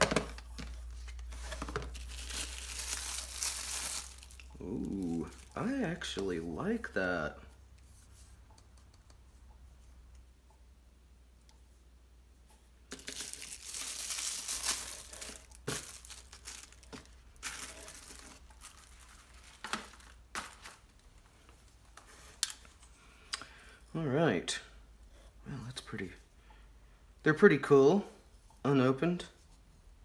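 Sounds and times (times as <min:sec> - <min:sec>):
plastic packaging crinkling and tearing: 0:00.0 - 0:05.8, 0:12.9 - 0:22.6.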